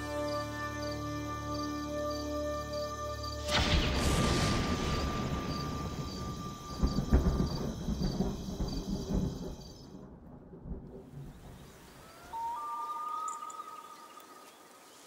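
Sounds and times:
rolling thunder: 3.5s - 12.1s.

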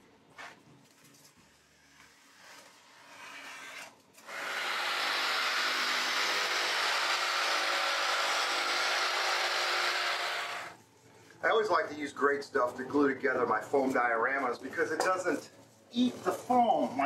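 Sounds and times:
electric jigsaw cutting foam: 2.0s - 10.8s.

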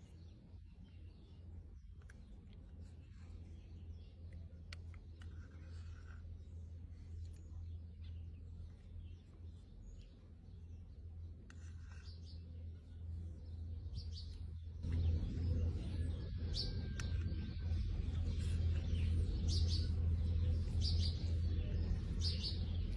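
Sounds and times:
small birds chirping: 0.0s - 22.9s
low rumble: 12.5s - 22.9s.

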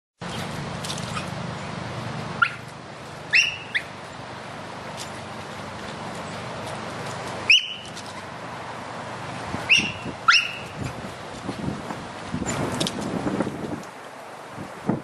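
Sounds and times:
high-pitched animal calls: 3.3s - 3.9s, 9.7s - 10.8s.

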